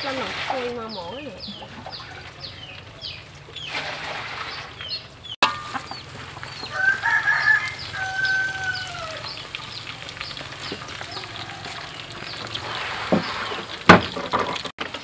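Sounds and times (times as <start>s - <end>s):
rooster crowing: 6.5s - 9.4s, 10.8s - 12.4s.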